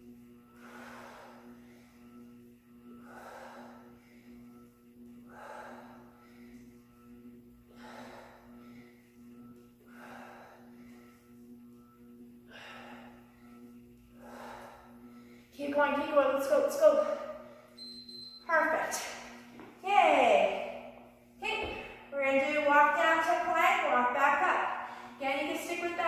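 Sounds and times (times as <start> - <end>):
steady low hum: 0.0 - 26.0
woman breathing hard: 0.5 - 15.6, 16.9 - 17.8, 24.7 - 25.2.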